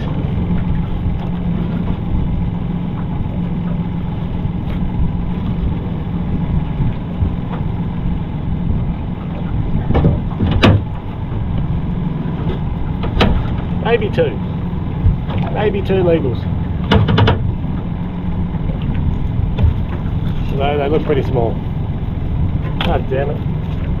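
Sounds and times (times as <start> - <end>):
boat engine idling: 0.0 - 24.0
sharp knocks: 9.9 - 11.0, 13.0 - 13.7, 16.8 - 17.6.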